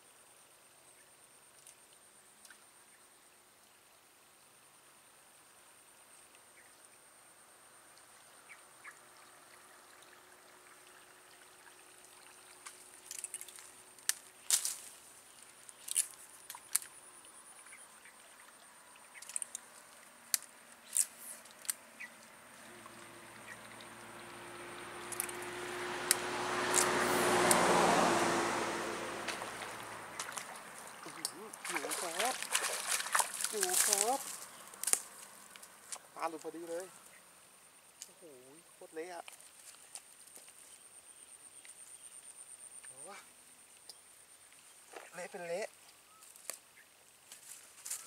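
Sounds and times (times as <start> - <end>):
water splashing: 8.8 - 36.3
lure clicking: 25.1 - 25.4.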